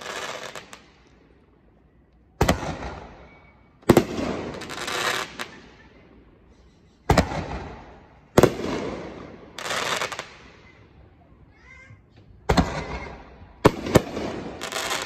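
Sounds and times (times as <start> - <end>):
firework crackling: 0.0 - 1.6, 3.8 - 6.1, 7.0 - 10.8, 12.4 - 15.0.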